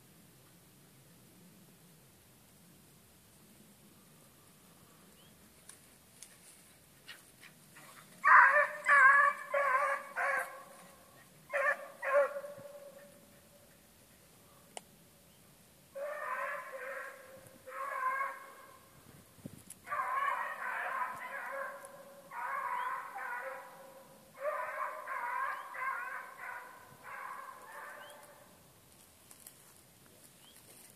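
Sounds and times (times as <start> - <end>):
hound baying: 7.8 - 13.8, 16.0 - 18.8, 19.9 - 28.4.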